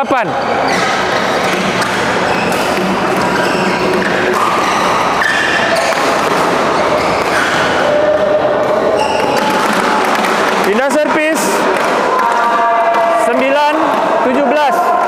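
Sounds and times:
sports hall hubbub: 0.0s - 15.0s
shoes squeaking on court: 0.4s - 11.0s
racket hitting shuttlecock: 0.6s - 14.1s.

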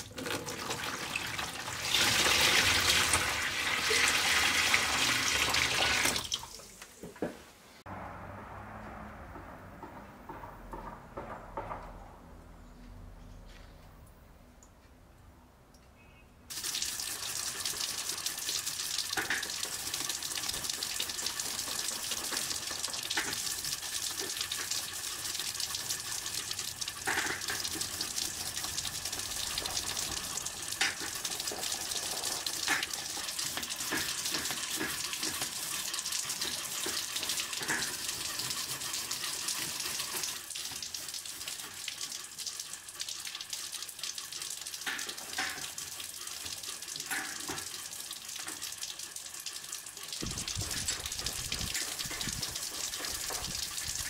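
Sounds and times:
water splashing onto metal: 0.0s - 6.7s, 16.5s - 48.8s, 49.9s - 54.0s.

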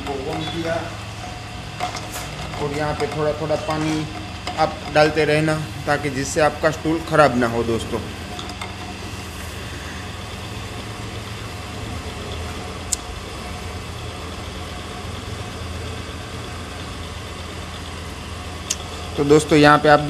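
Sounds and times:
drill press humming: 0.0s - 20.0s.

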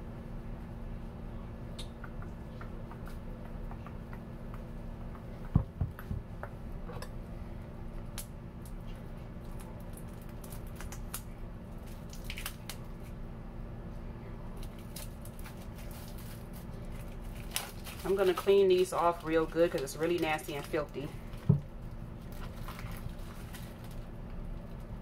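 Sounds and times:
plastic wrap crinkling: 9.4s - 13.1s, 14.6s - 21.5s, 22.2s - 25.0s.

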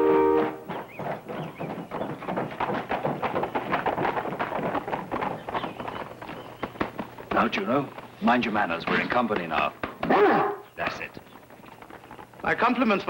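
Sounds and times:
brass fanfare: 0.0s - 0.6s
horse hooves on stone: 0.0s - 13.0s.

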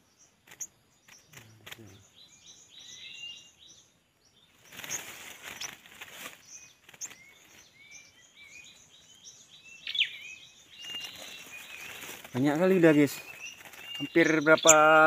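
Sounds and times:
small birds chirping: 0.0s - 15.0s
leafy branches rustling: 4.5s - 15.0s.

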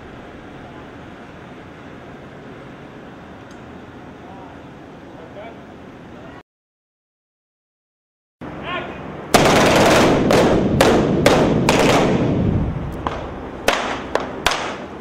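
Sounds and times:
continuous battle noise: 9.3s - 14.9s
gunfire and explosive bangs: 9.3s - 14.9s.

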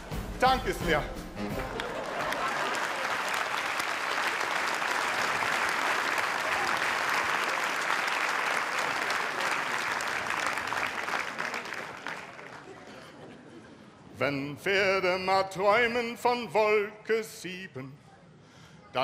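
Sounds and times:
audience applauding: 1.5s - 13.0s.

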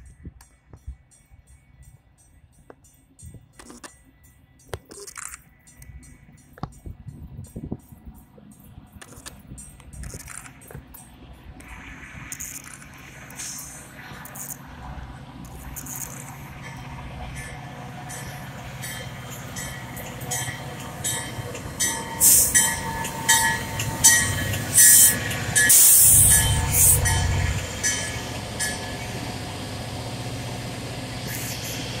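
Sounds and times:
diesel locomotive engine drone: 0.0s - 32.0s
train brakes squealing: 15.6s - 32.0s.

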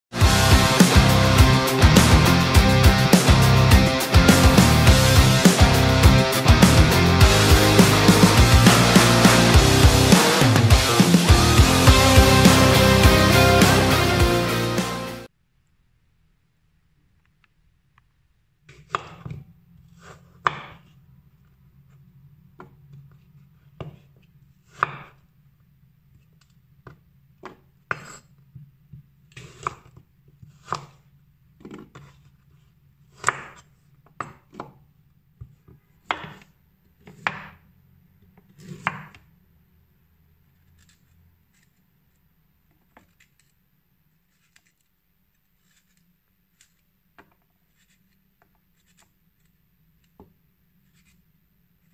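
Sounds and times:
knife scraping while peeling: 40.5s - 42.2s, 44.2s - 47.0s, 47.6s - 50.2s, 50.8s - 51.9s.

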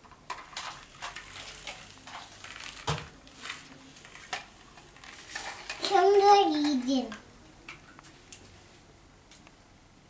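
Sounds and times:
plastic toy vehicles clicking: 0.0s - 7.2s.

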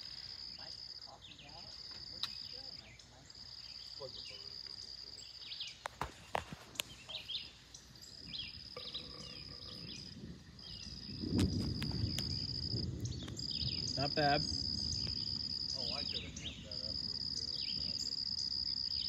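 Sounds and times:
insects buzzing: 0.0s - 19.0s
bird chirps: 0.5s - 19.0s
distant thunder rumble: 8.2s - 18.8s.

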